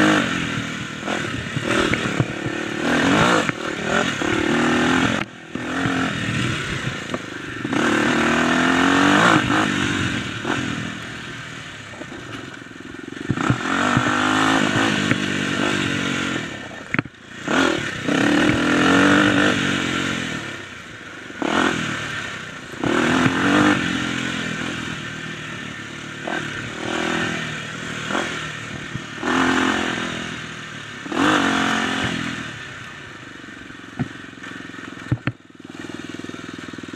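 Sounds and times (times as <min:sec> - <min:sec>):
dirt bike engine revving: 0:00.0 - 0:36.9.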